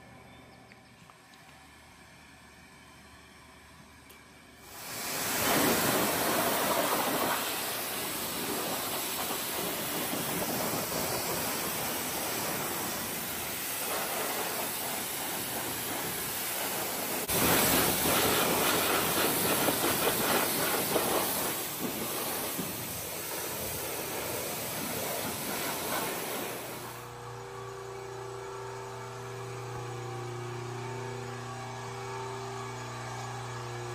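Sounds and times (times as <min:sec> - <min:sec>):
pressure washer jet hissing: 0:04.6 - 0:27.1.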